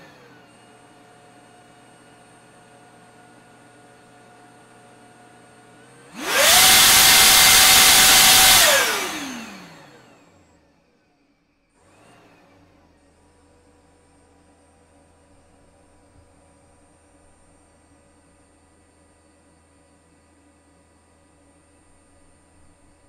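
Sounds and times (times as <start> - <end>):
electric supercharger whining: 6.1 - 10.5.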